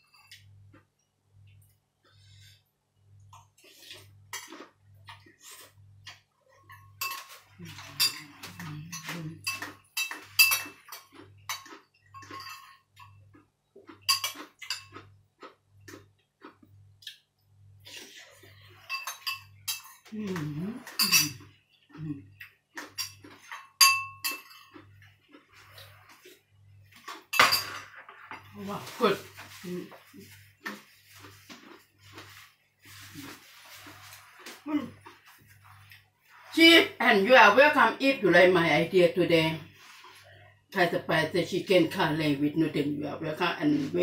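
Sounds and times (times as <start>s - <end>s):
spoon clinking on ceramic bowl: 6.7s - 13.2s, 14.0s - 15.0s, 18.8s - 20.1s, 20.8s - 21.4s, 22.9s - 24.8s.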